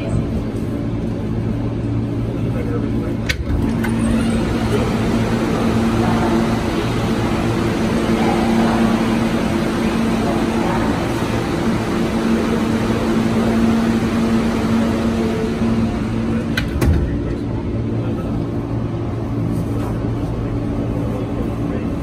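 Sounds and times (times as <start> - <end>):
subway car electrical hum: 0.0 - 22.0.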